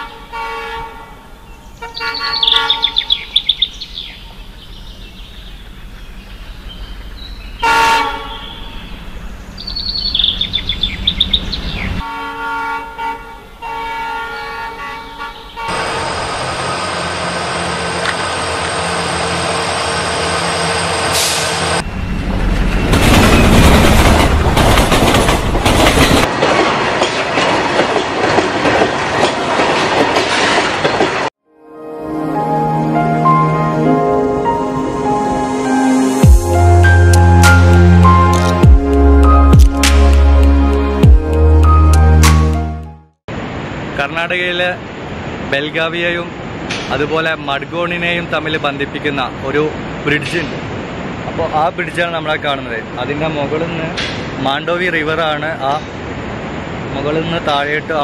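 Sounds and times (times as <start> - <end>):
train horn: 0.0 - 1.2, 7.6 - 8.4, 12.0 - 16.1
train rumbling past: 4.2 - 31.3
train wheel noise: 15.7 - 31.3.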